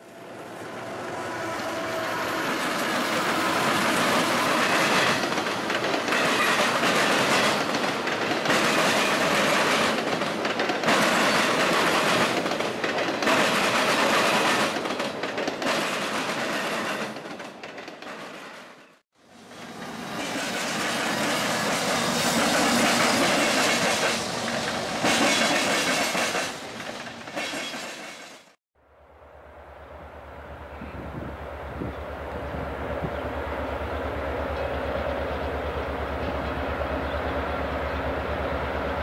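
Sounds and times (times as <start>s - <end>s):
rumble of train cars: 0.0s - 39.0s
train wheels clacking over rail joints: 2.2s - 28.6s.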